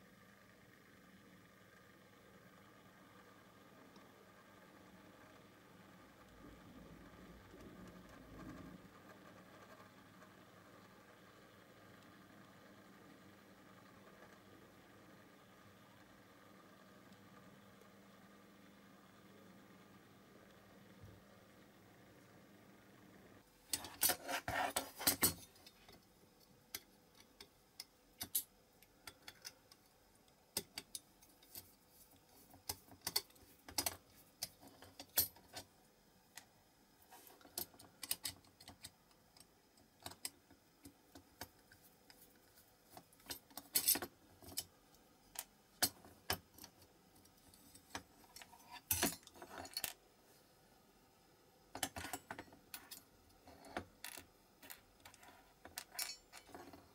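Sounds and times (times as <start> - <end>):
metal toy parts clicking: 26.7 - 29.8.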